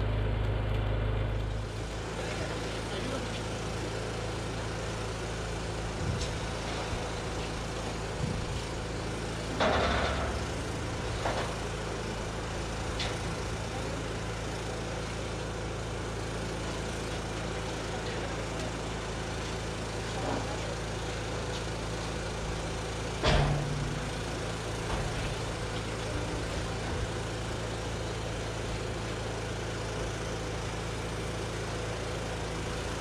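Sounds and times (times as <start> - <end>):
engine idling: 0.0 - 33.0
metal clank: 23.2 - 24.2.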